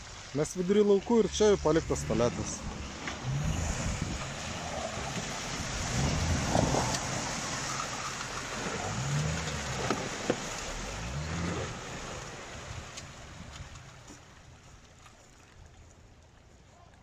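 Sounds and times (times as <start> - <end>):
mud and water splashing: 0.0 - 17.0
car engine revving: 1.2 - 13.0.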